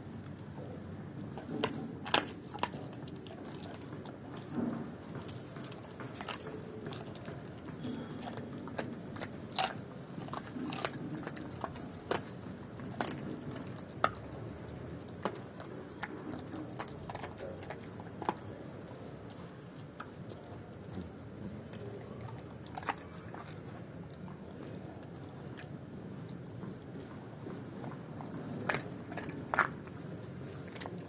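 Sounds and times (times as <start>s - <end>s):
dog chewing and crunching: 0.0s - 31.0s
bone cracking: 1.4s - 4.6s, 5.2s - 18.5s.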